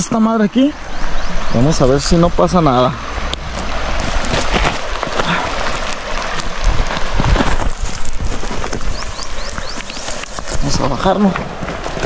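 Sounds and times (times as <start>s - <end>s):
stones clicking: 3.3s - 12.0s
footsteps crunching on gravel: 3.4s - 12.0s.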